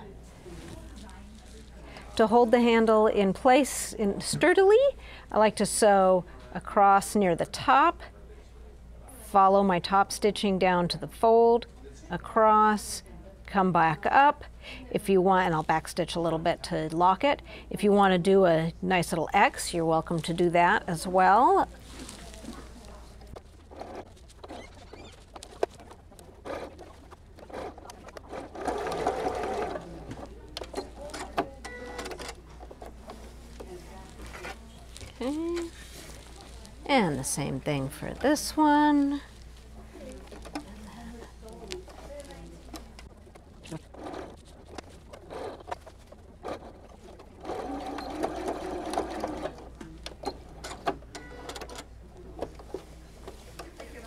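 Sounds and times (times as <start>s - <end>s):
fabric handling: 21.4s - 31.1s, 32.7s - 37.7s, 38.6s - 46.1s
sewing machine stitching: 23.6s - 32.8s, 43.6s - 51.9s.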